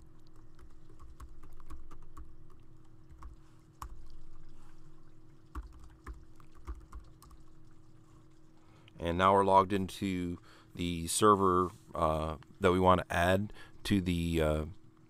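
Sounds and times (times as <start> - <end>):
faint steady hum: 0.0 - 15.0
computer keyboard typing: 0.2 - 4.5, 5.5 - 7.6.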